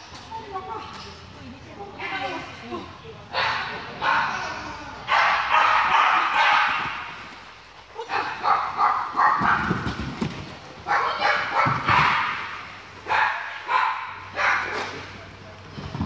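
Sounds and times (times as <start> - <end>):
dog barking excitedly: 5.1 - 7.2, 8.0 - 10.0, 10.8 - 15.0.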